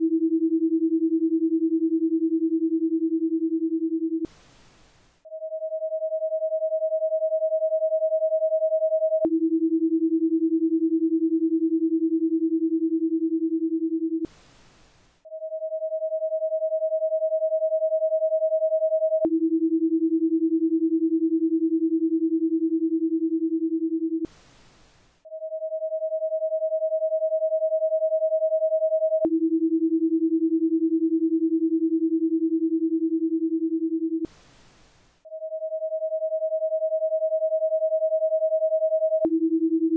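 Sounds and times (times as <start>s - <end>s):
faint hiss: 4.3s - 5.2s, 14.3s - 15.2s, 24.3s - 25.2s, 34.3s - 35.2s.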